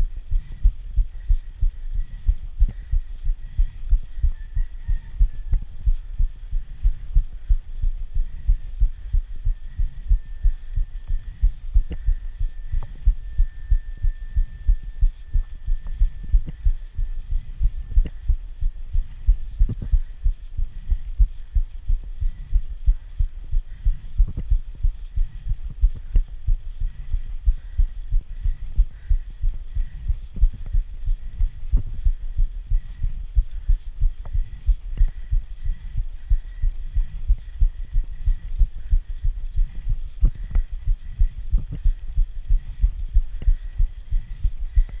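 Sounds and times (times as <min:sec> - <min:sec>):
faint steady high tone: 0:00.0 - 0:20.2
rhythmic low thumping: 0:00.0 - 0:45.0.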